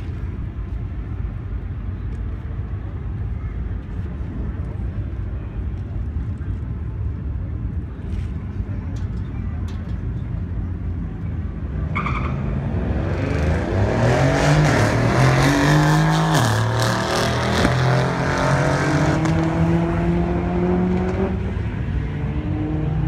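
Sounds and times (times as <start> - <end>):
car engines revving hard: 11.8 - 23.0.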